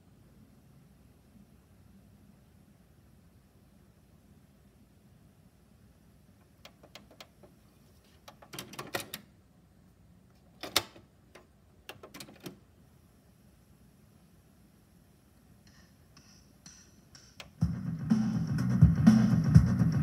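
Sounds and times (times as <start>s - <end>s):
cassette door snapping shut: 10.6s - 11.1s.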